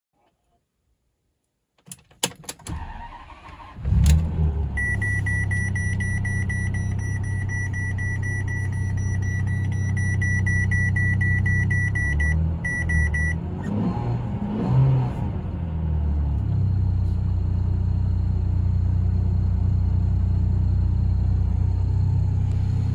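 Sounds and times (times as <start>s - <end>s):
ignition clicks: 1.8s - 13.8s
engine starting and idling: 2.2s - 13.4s
engine revving: 3.2s - 18.4s
electronic warning beep: 4.8s - 13.4s.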